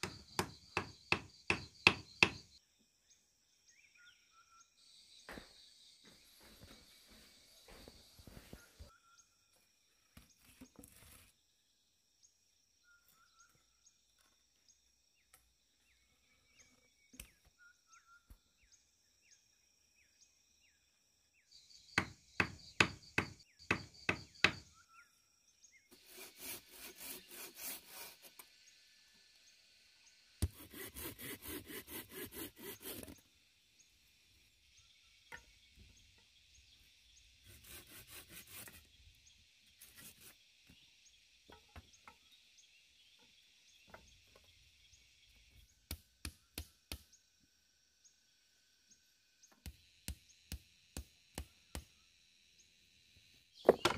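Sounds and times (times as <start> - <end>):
sharp knocks on wood: 0.0 - 2.4, 22.0 - 24.6, 53.6 - 53.9
faint insect chirps: 0.0 - 26.1, 27.2 - 31.0, 32.7 - 53.9
hand saw cutting wood: 25.9 - 28.5, 30.4 - 33.2, 37.4 - 38.9, 39.8 - 40.4.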